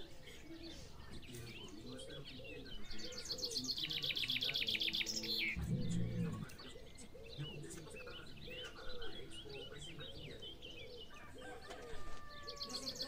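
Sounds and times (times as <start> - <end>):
birds chirping and singing: 0.0 - 13.0
low deep sound: 5.6 - 6.6.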